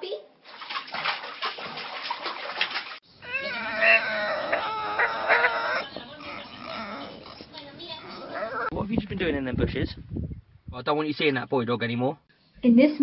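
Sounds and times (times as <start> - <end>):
animal calling: 3.1 - 8.8.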